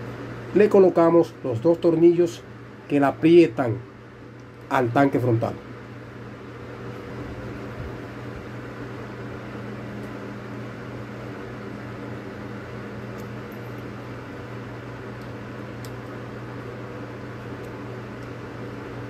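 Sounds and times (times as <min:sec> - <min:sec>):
electric motor hum: 0:05.4 - 0:19.0
screwdriver clicks: 0:15.2 - 0:16.1.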